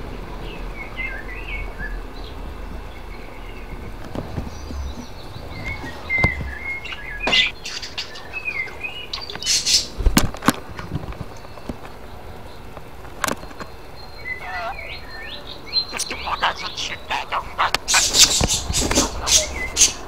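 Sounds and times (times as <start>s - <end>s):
budgerigar chirping: 4.7s - 10.0s, 14.2s - 20.0s.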